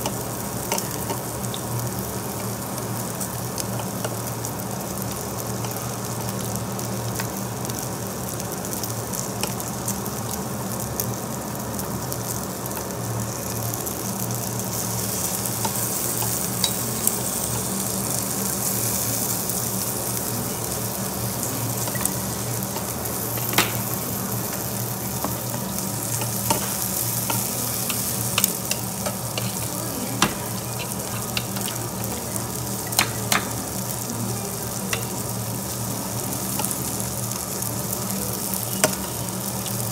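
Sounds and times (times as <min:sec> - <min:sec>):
meat sizzling on grill plate: 0:00.0 - 0:39.9
metal tongs clicking on plate: 0:25.2 - 0:31.8, 0:32.9 - 0:33.5.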